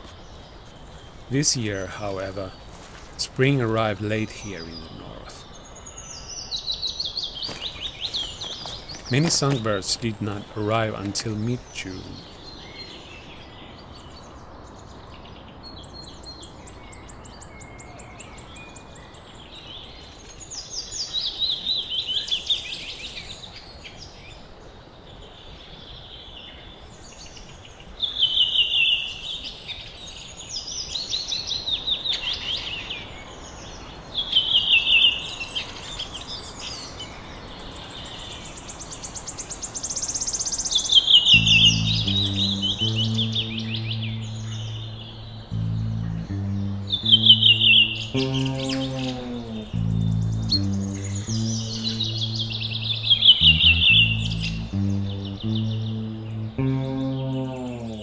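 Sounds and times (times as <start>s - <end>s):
distant birdsong: 0.0s - 24.4s, 36.0s - 58.0s
songbirds singing: 0.0s - 58.0s.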